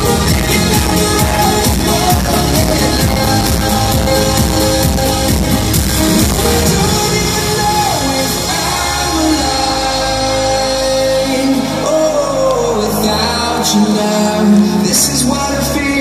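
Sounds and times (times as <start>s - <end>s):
drum beat: 0.0s - 7.0s
sung vocal over held chords: 0.0s - 16.0s
trance music over sound system: 0.0s - 16.0s.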